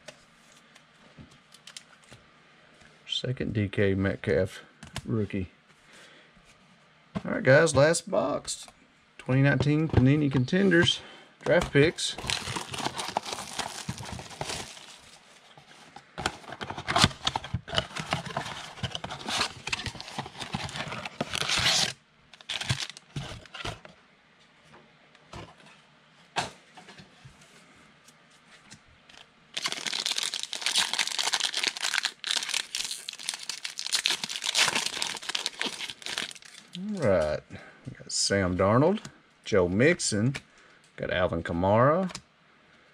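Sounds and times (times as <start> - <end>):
plastic wrapping tearing and crinkling: 12.1 - 15.3, 16.4 - 23.6, 29.1 - 36.8.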